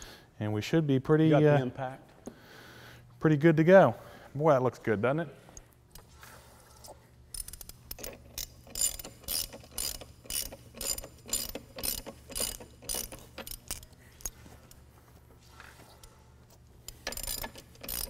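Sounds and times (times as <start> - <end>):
ratchet wrench clicking: 7.3 - 14.4, 16.8 - 18.0.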